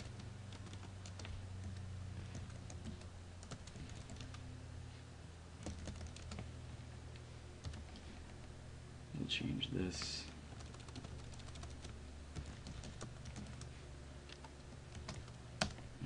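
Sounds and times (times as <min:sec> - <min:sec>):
computer keyboard typing: 0:00.0 - 0:04.4, 0:05.6 - 0:06.5, 0:07.6 - 0:08.2, 0:10.5 - 0:13.7, 0:14.3 - 0:15.8
low hum: 0:00.0 - 0:16.0.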